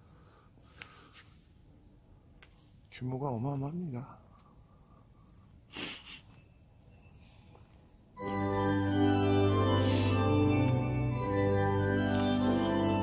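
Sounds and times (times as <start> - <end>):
pipe organ chords: 8.2 - 13.0.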